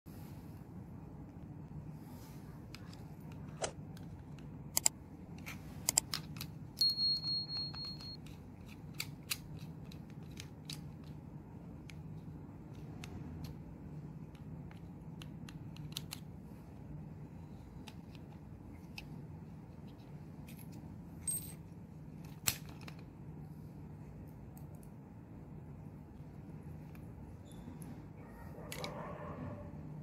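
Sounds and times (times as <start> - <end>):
steady low hum: 0.1 - 30.0.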